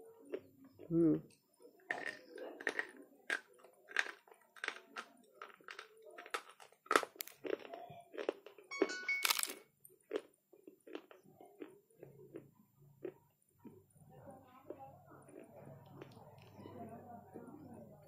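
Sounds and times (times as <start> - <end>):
chewing sharp crunches: 1.9 - 8.7, 9.3 - 13.8.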